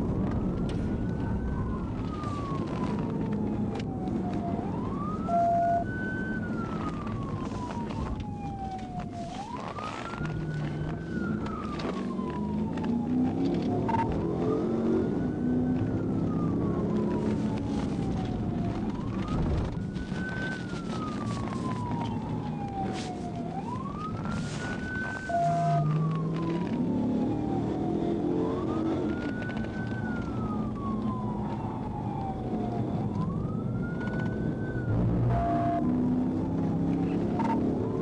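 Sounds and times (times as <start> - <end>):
car engine and tyre noise: 0.0 - 38.0
police siren wailing: 0.0 - 38.0.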